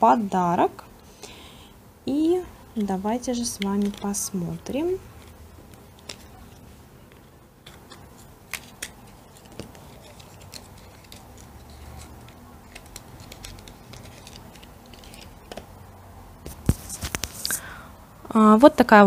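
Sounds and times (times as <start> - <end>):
packaging rustling: 2.8 - 15.9
small cardboard box clicking: 7.6 - 15.7.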